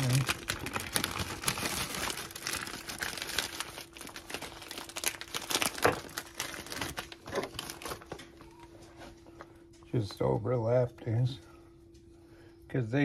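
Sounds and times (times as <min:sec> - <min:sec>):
food packaging crinkling: 0:00.0 - 0:09.0
faint hum: 0:00.0 - 0:13.0.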